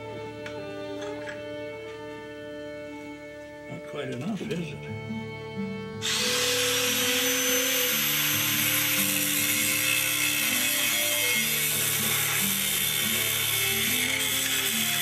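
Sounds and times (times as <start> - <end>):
music: 0.0 - 15.0
angle grinder grinding steel: 6.0 - 15.0.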